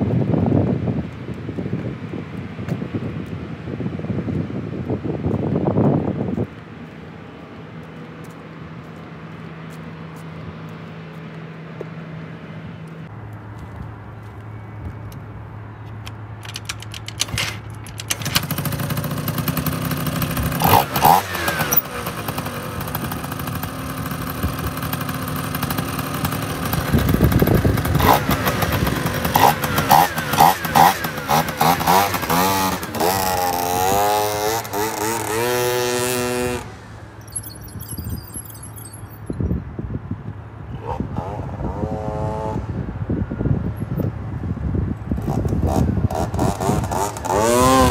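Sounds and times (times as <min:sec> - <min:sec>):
scooter engine revving: 0:16.4 - 0:38.1, 0:40.7 - 0:43.0, 0:45.1 - 0:47.9.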